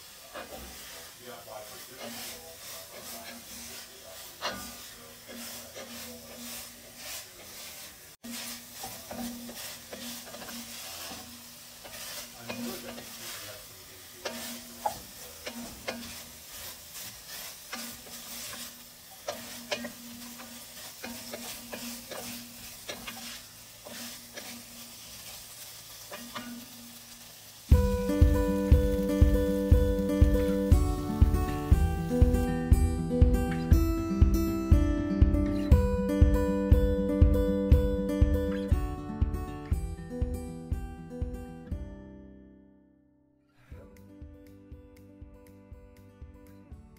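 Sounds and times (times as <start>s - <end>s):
vegetables sizzling in a pot: 0.0s - 37.5s
spatula scraping and clacking pot: 1.8s - 26.8s.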